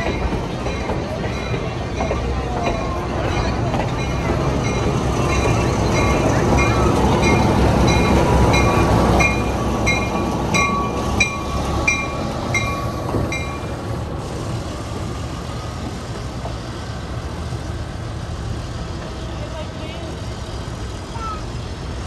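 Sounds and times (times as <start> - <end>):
locomotive bell ringing: 0.0 - 13.8
diesel locomotive rumble: 0.0 - 22.0.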